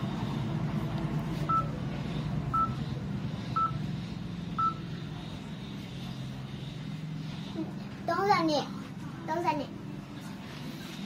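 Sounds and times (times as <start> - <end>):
low background hum: 0.0 - 11.0
short electronic beeps: 1.5 - 1.8, 2.5 - 2.8, 3.5 - 3.8, 4.6 - 4.9.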